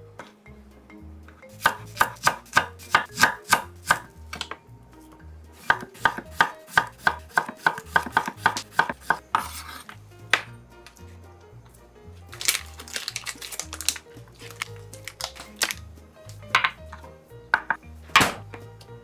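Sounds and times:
knife slicing on wooden board: 0:05.7 - 0:10.0.

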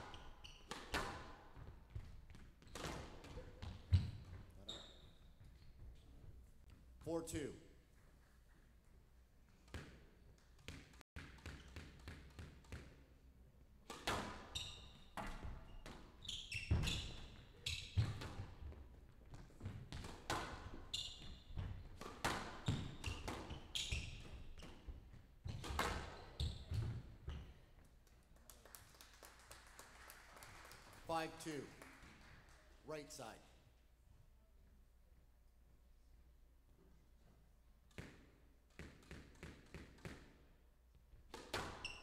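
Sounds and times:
shoes squeaking on court floor: 0:00.0 - 0:06.9, 0:10.6 - 0:12.3, 0:14.0 - 0:27.8, 0:41.4 - 0:42.0
squash ball strikes: 0:21.5 - 0:23.6.

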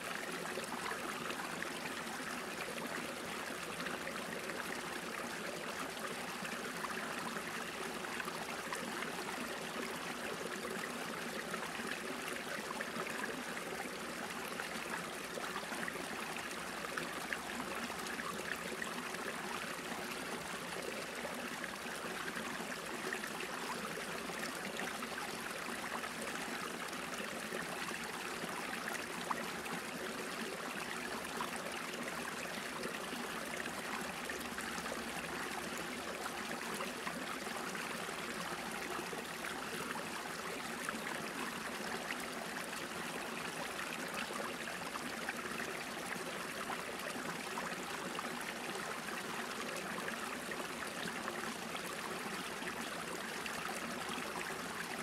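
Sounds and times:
brook trickling and gurgling: 0:00.0 - 0:55.0.

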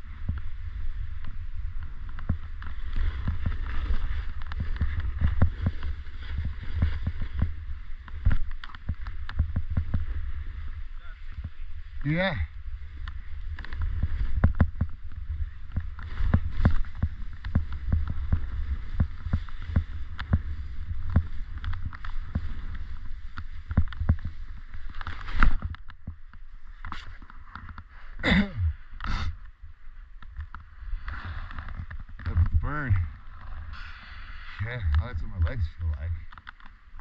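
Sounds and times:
skis scraping over snow: 0:00.0 - 0:28.2, 0:30.4 - 0:37.0
wind rumble on microphone: 0:00.0 - 0:37.0
clicks and knocks from bumps: 0:13.0 - 0:27.9, 0:34.8 - 0:37.0.

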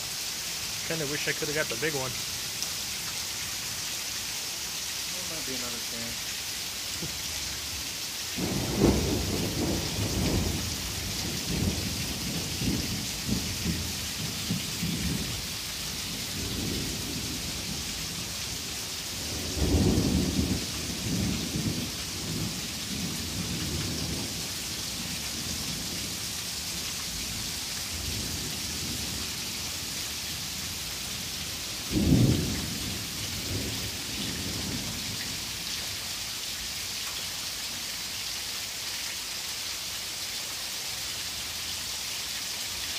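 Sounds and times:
heavy rain falling: 0:00.0 - 0:42.9
thunder rumbling: 0:08.4 - 0:15.4, 0:19.2 - 0:24.4, 0:31.9 - 0:35.1.

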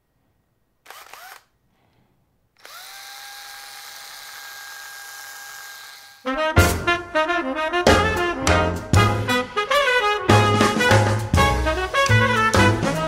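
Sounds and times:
cordless drill motor whining: 0:00.9 - 0:01.5, 0:02.6 - 0:06.2.

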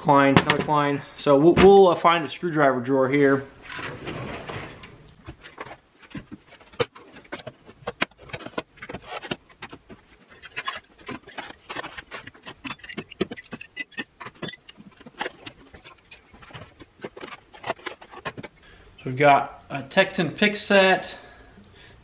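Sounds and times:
hand tools clicking and clacking: 0:04.6 - 0:18.7
metallic jingle: 0:10.4 - 0:11.0, 0:12.7 - 0:14.8.

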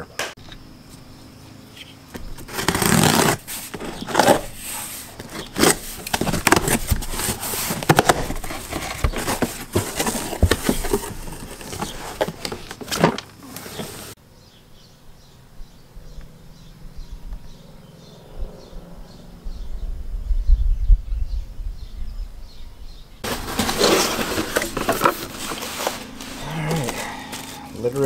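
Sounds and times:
cardboard scrapes and crackles: 0:02.2 - 0:14.2, 0:23.2 - 0:28.0
knife cutting cardboard box: 0:02.2 - 0:14.2, 0:23.2 - 0:27.6.

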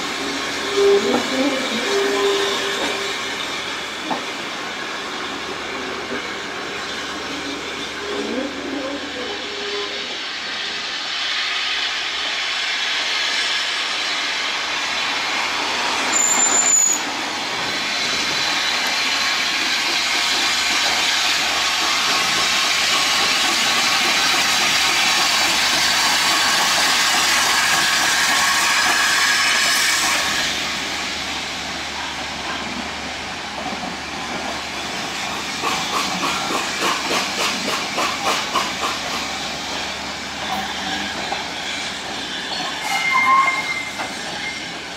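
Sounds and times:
steam locomotive hissing: 0:00.0 - 0:44.9
high-pitched whistle note: 0:16.1 - 0:17.1
train wheels clacking on rail joints: 0:33.5 - 0:44.6.

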